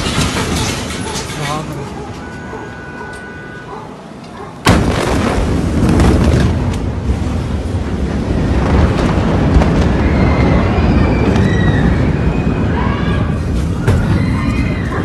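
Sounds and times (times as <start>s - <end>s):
explosion roar: 4.6s - 15.0s.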